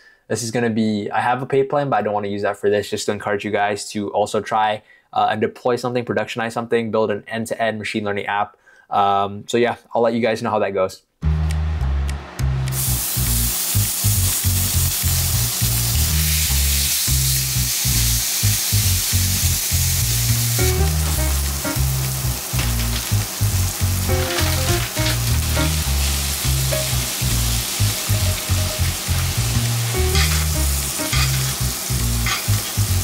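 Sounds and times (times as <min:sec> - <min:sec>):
steaks sizzling in skillet: 0:12.7 - 0:33.0
music with heavy bass beat: 0:20.6 - 0:22.6, 0:23.8 - 0:32.2.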